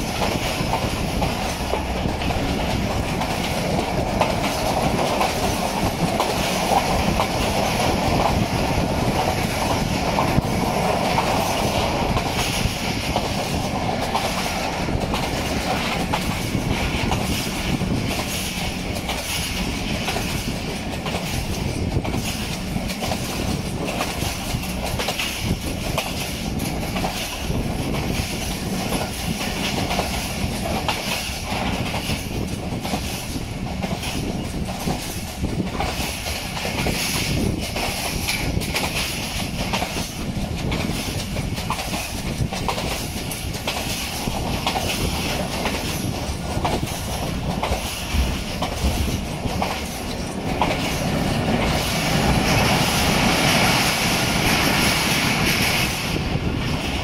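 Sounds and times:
clickety-clack over rail joints: 0.0 - 57.0
train wheels rumbling on rail: 0.0 - 57.0.

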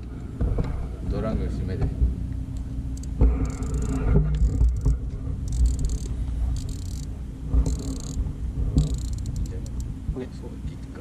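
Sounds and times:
steady low rumble: 0.0 - 11.0
fishing reel whirring: 2.9 - 8.2, 8.8 - 9.9.

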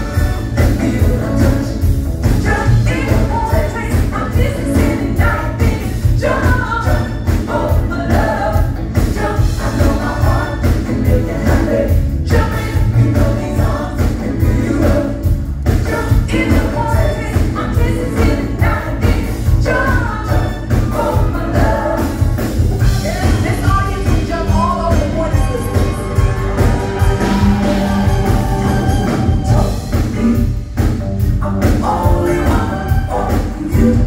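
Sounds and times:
live pop band with heavy beat: 0.0 - 34.0
women singing together: 2.4 - 22.4.

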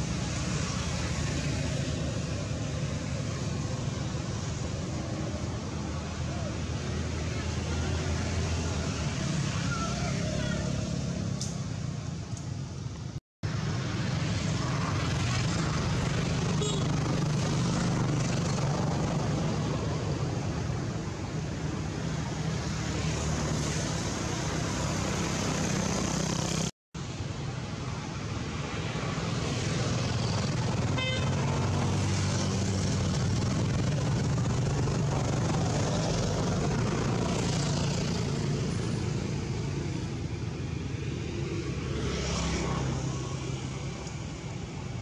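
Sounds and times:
low outdoor rumble: 29.0 - 41.0.

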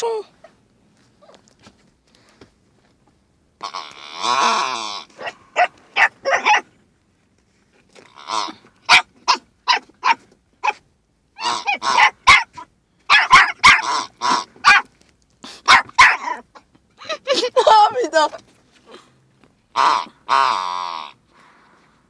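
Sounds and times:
dog squealing: 4.1 - 6.6, 11.4 - 14.8, 15.7 - 16.6
small dog yapping: 5.2 - 6.7, 8.9 - 10.8, 11.4 - 14.9, 15.6 - 16.6.

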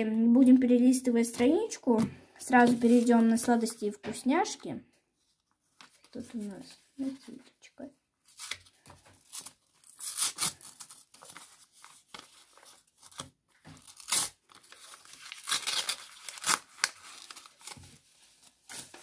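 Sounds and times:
paper crinkling: 8.3 - 19.0
thin paper ripping: 9.2 - 17.8.

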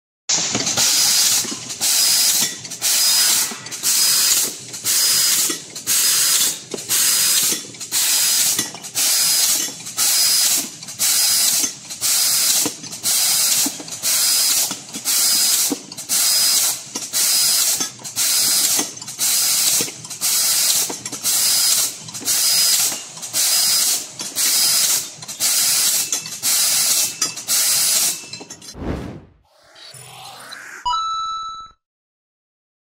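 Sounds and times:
laser cutter gas hissing: 0.8 - 26.0.

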